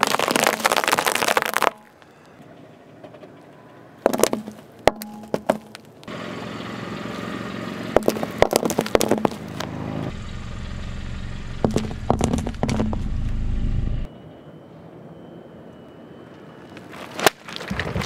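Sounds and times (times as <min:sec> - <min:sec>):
tyre crushing balls crackling: 0:00.0 - 0:02.0, 0:08.0 - 0:09.7
car running and tyre noise: 0:02.4 - 0:14.1.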